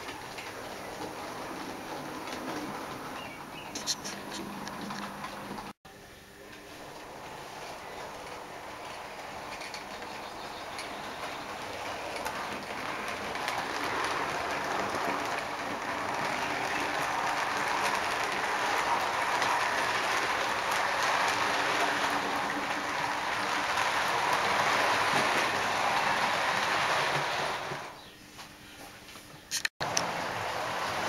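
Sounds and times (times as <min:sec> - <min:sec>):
model train wheels rattling on track: 0:08.0 - 0:28.0.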